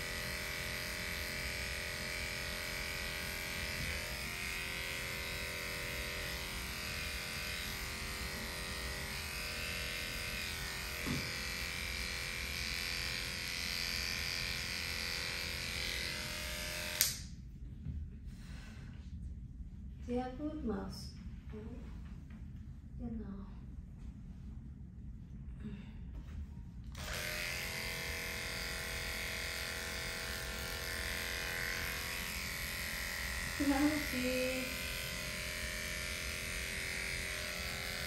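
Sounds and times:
electric clipper buzzing: 0.0 - 17.4, 26.9 - 38.0.

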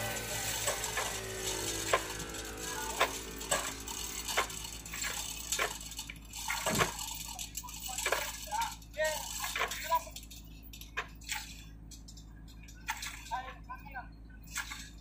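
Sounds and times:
metallic ratchet clicks: 0.0 - 11.0.

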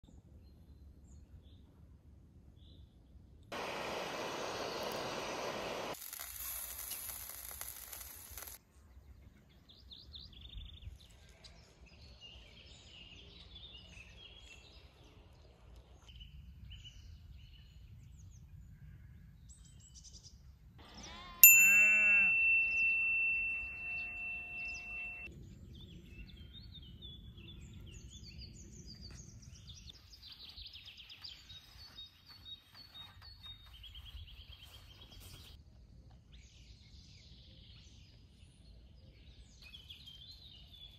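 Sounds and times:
birds chirping: 3.6 - 6.0, 20.8 - 35.6
high hiss: 3.6 - 8.6
loud ringing tone: 21.4 - 25.3.

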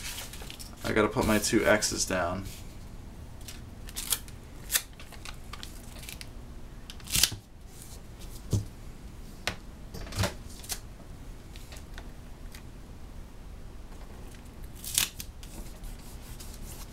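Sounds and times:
paper and tape rustling: 0.0 - 1.9, 3.4 - 6.3, 14.8 - 16.9.

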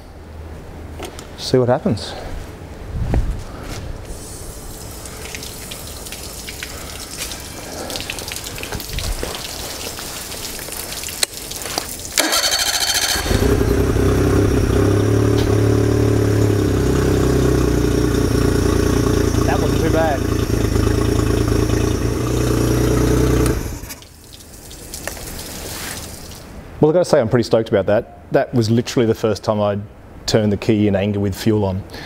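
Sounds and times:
starter motor cranking: 12.2 - 16.9, 17.6 - 24.0
outboard engine running: 12.2 - 24.0.

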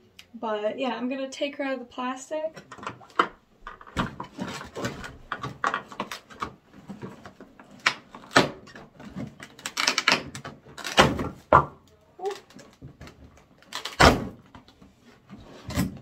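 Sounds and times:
plastic tray crinkling and clacking: 2.6 - 11.7.

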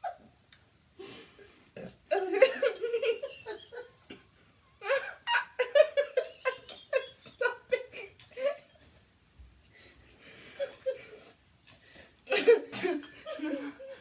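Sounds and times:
people laughing: 2.4 - 4.2, 4.8 - 8.5.

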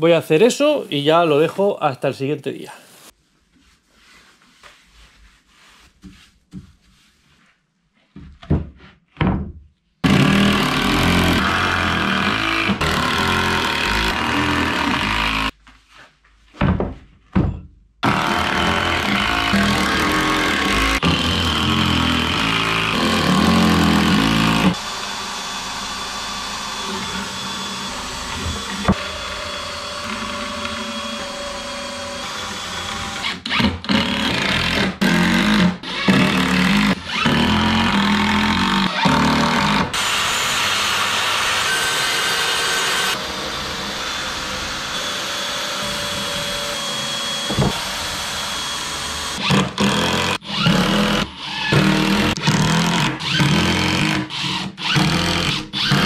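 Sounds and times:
power tools running: 10.0 - 15.5, 18.0 - 56.0.

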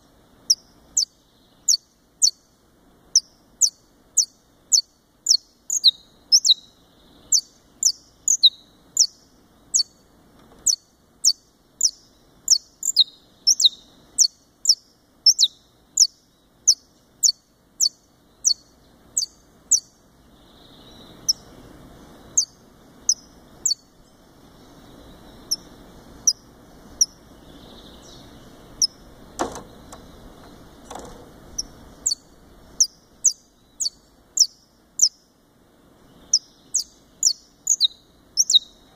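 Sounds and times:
faint low rumble: 0.0 - 38.9
finch chipping: 28.1 - 35.1
sharp knocks: 29.4 - 31.4.

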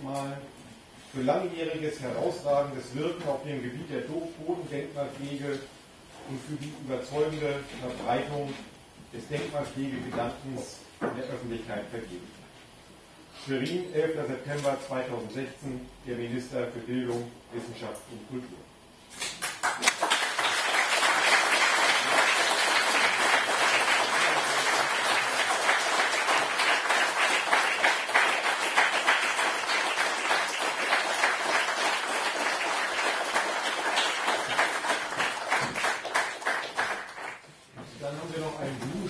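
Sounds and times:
audience applauding: 19.4 - 37.5.

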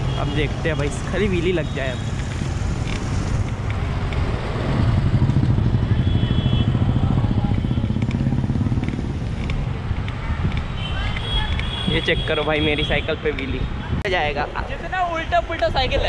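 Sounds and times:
motorcycle engine passing: 2.5 - 9.9.

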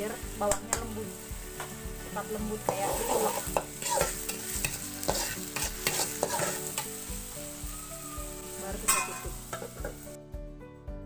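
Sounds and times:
garlic sizzling in oil: 0.0 - 10.2
metal spatula scraping a wok: 2.7 - 7.1, 8.8 - 10.0.

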